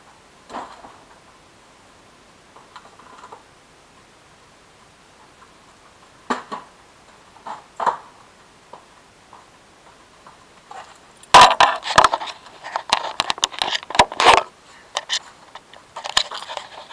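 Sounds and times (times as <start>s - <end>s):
camera handling noise: 11.4s - 16.9s.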